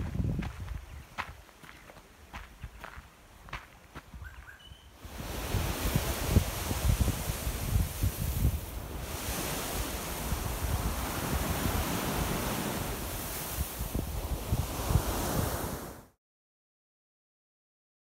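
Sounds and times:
wind buffeting microphone: 0.0s - 1.4s, 2.3s - 16.0s
surf breaking on beach: 5.0s - 16.2s.

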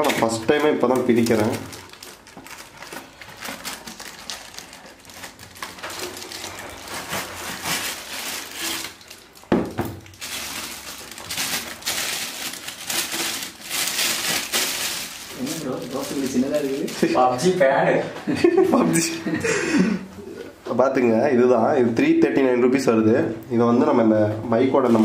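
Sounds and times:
cardboard and plastic rustling: 0.0s - 17.7s, 24.8s - 25.0s.

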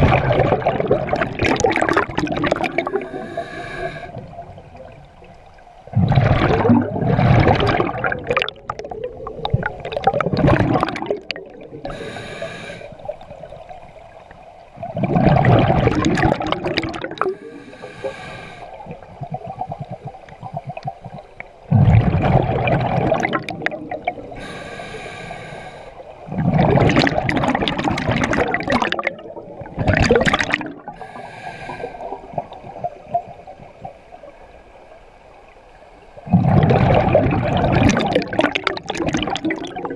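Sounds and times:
exhaled bubbles rushing: 0.0s - 3.4s, 4.2s - 12.0s, 14.8s - 17.6s, 18.8s - 24.4s, 26.2s - 31.0s, 36.2s - 39.9s
regulator inhalation hiss: 3.0s - 4.3s, 11.9s - 13.0s, 17.3s - 18.9s, 24.4s - 26.0s, 31.0s - 32.3s.

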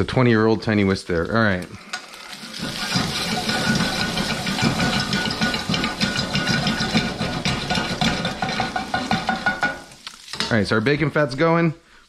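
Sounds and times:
bacon sizzling and popping: 0.0s - 11.4s
wooden spatula stirring: 1.1s - 10.8s.

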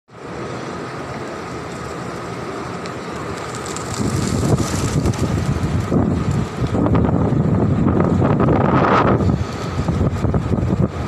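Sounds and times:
wind buffeting microphone: 3.4s - 11.0s.

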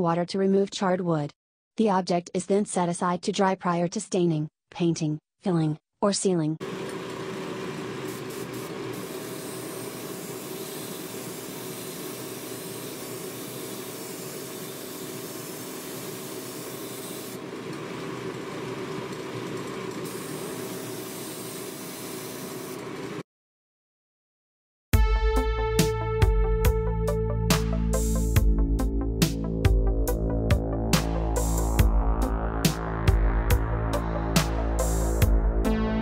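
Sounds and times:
spray paint hissing: 8.0s - 17.4s, 20.0s - 23.2s.

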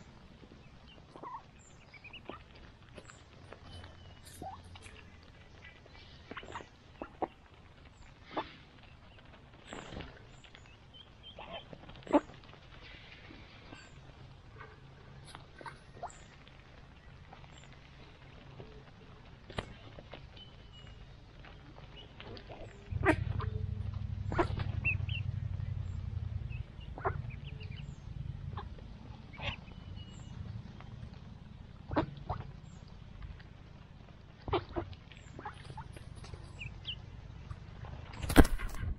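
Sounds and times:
ducks pecking in grass: 0.0s - 38.9s
duck calls: 11.4s - 12.4s, 22.3s - 25.4s, 26.5s - 27.8s, 28.5s - 29.8s, 31.8s - 32.5s, 34.4s - 37.0s
low rumble: 20.4s - 38.9s.

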